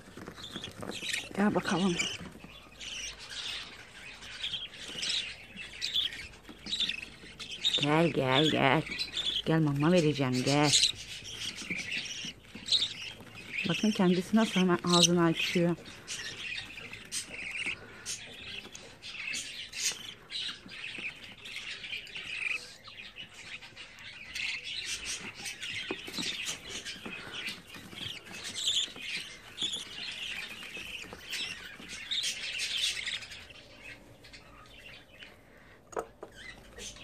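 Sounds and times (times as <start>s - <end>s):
chicks squawking begging calls: 0.0s - 37.0s.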